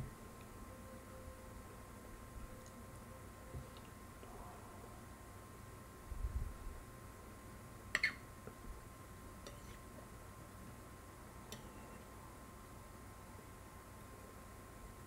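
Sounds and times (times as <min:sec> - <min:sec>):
faint steady high tone: 0:00.0 - 0:05.6.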